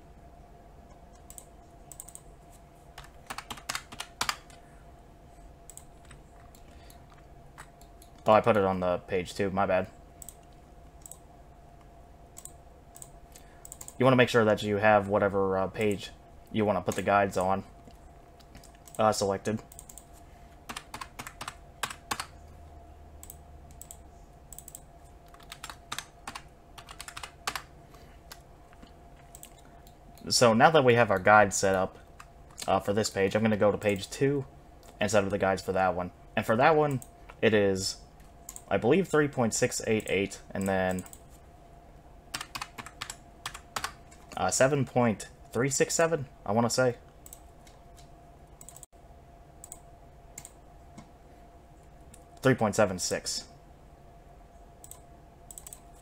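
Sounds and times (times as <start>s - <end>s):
keyboard typing: 1.1s - 2.3s, 2.9s - 4.6s, 5.7s - 8.4s, 10.2s - 11.2s, 12.4s - 14.1s, 16.9s - 22.4s, 23.2s - 30.3s, 42.3s - 44.4s, 47.2s - 48.9s, 50.4s - 51.1s, 54.8s - 56.0s.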